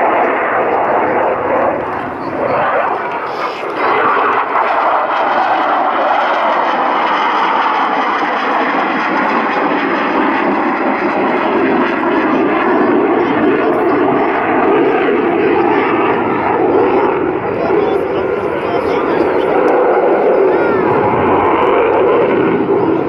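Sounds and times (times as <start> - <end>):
fighter jet roar: 0.0 - 23.0.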